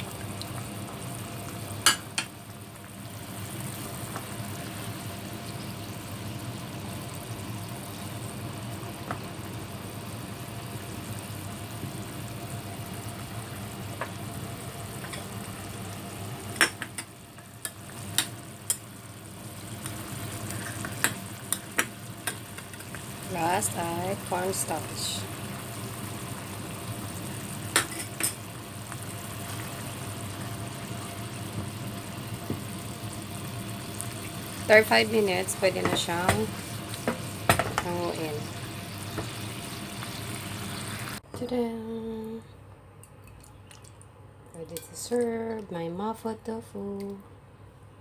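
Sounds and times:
sauce sizzling in a pan: 0:00.0 - 0:41.2
spatula stirring: 0:20.4 - 0:23.0
utensils knocking against pan: 0:35.8 - 0:37.9.

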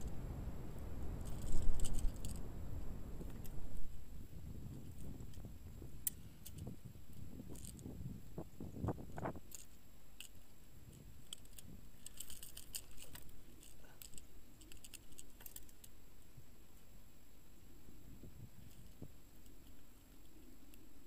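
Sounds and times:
metallic clicks and rattles of pliers: 0:09.5 - 0:15.9.

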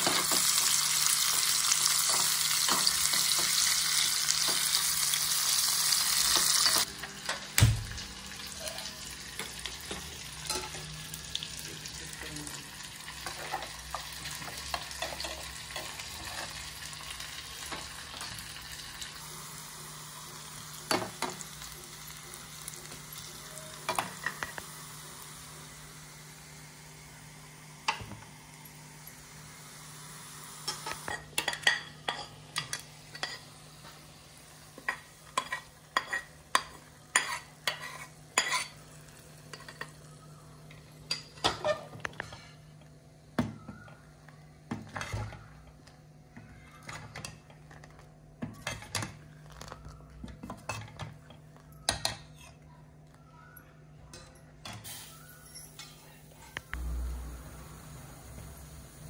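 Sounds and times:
faint sizzle: 0:00.0 - 0:59.0
metal spoon scraping a pan: 0:34.9 - 0:38.9.

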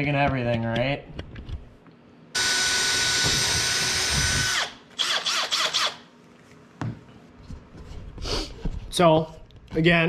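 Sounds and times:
cordless drill whine: 0:02.4 - 0:06.0
drill trigger bursts: 0:02.4 - 0:06.0.

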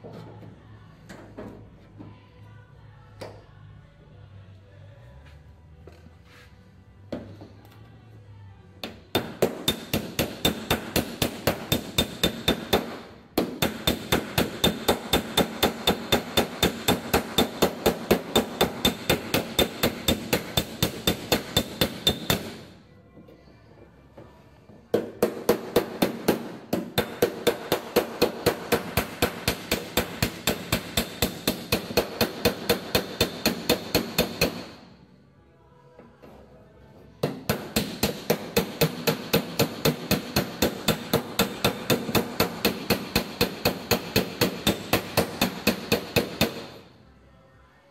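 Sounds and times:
hammer striking steel panel: 0:09.2 - 0:22.7.

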